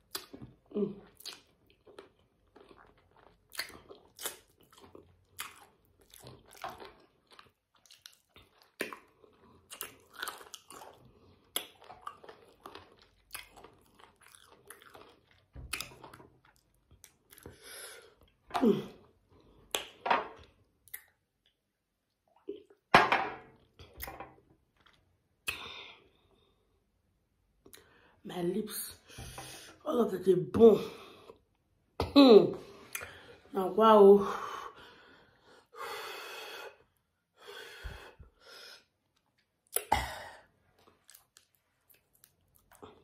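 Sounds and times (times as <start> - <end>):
wet chewing and crunching: 0.0 - 18.5, 40.6 - 43.0.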